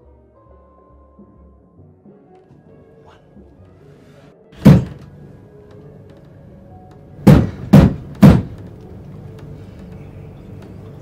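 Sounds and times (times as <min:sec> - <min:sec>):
faint music score: 0:00.0 - 0:11.0
fist knocking on wood: 0:04.6 - 0:05.0, 0:07.2 - 0:08.7.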